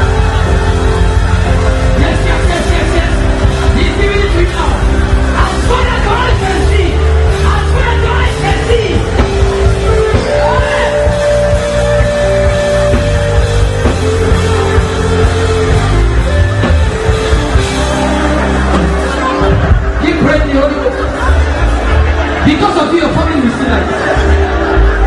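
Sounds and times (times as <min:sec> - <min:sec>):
live gospel music: 0:00.0 - 0:25.0
crowd shouting: 0:05.5 - 0:25.0
person singing: 0:09.4 - 0:13.2.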